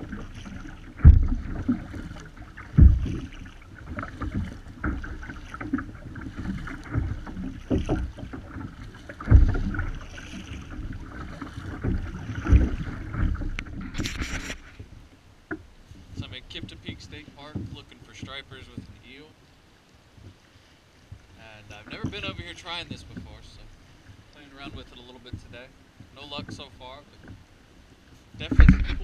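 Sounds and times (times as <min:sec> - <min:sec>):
wind buffeting microphone: 0:00.0 - 0:14.9
water slapping against kayak hull: 0:00.0 - 0:19.2, 0:20.1 - 0:29.0
paddle strokes: 0:00.0 - 0:29.0
heavy low thumps: 0:00.9 - 0:01.8, 0:02.6 - 0:03.3.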